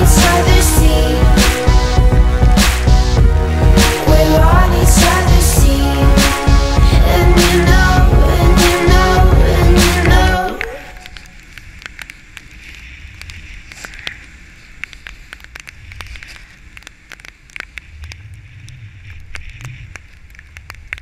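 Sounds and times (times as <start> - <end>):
song playing: 0.0 - 11.1
steady hiss: 0.0 - 21.0
sharp clicks and crackles: 10.0 - 21.0
snowboard riding over snow: 11.0 - 21.0.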